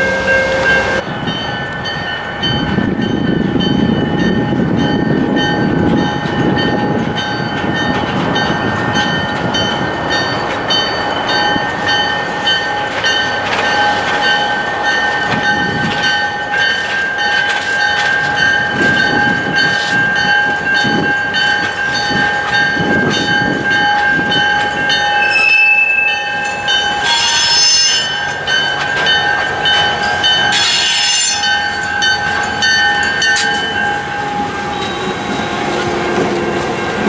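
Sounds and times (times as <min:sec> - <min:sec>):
crossing bell ringing: 0:00.0 - 0:37.0
train wheels squealing: 0:22.2 - 0:37.0.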